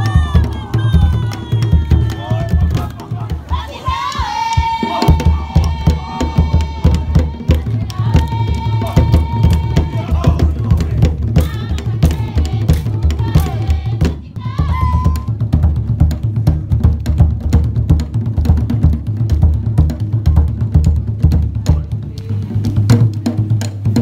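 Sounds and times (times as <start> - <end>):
people calling out: 0.0 - 11.1
fast dance drumming: 0.0 - 24.0.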